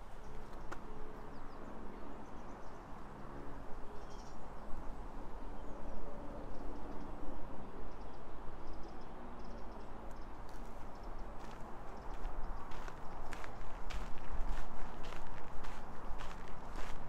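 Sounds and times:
low outdoor hum: 0:00.0 - 0:17.0
small birds chirping: 0:07.9 - 0:17.0.

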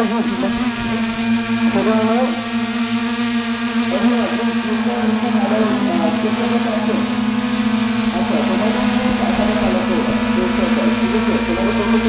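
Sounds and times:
drone motors humming: 0:00.0 - 0:12.0
faint crowd voices: 0:03.9 - 0:12.0.

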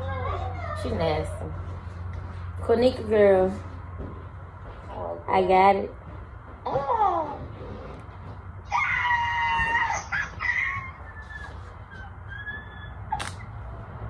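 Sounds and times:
person squealing with joy: 0:08.7 - 0:13.3.

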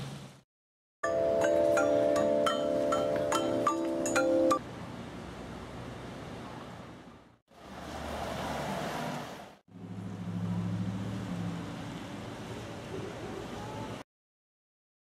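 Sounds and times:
vehicle engine humming: 0:07.6 - 0:12.8.

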